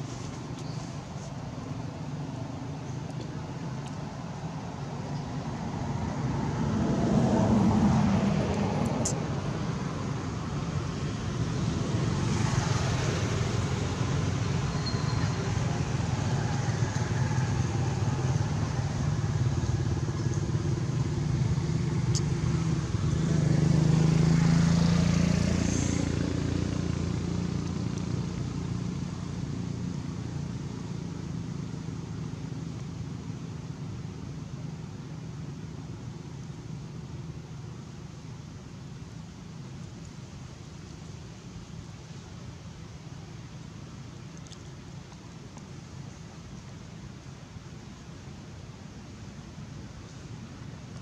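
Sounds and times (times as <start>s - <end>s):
vehicle engines humming: 0.0s - 51.0s.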